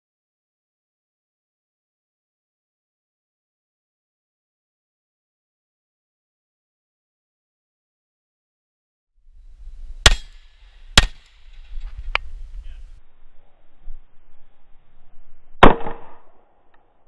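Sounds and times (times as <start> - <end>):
pistol gunshots: 10.0 - 11.4, 15.6 - 16.3.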